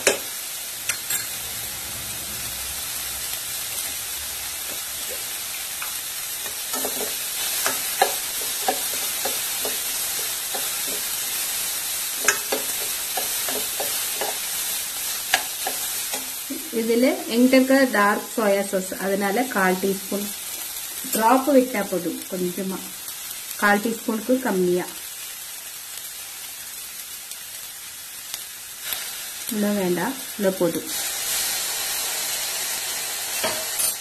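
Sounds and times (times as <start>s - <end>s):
metal spoon scraping a pan: 0.0s - 1.7s, 3.7s - 11.6s, 12.2s - 16.4s
vegetables sizzling in a pan: 0.0s - 34.0s.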